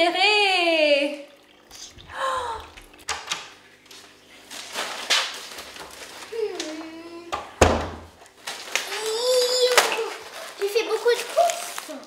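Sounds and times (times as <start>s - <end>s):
plastic bag rustling: 4.0s - 7.2s, 8.3s - 12.0s
wooden door banging shut: 7.5s - 8.1s.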